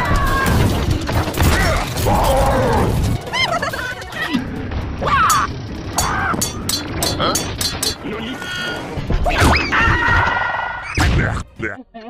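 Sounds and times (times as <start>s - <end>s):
mechanical clanks: 0.0s - 8.2s
music: 0.0s - 12.0s.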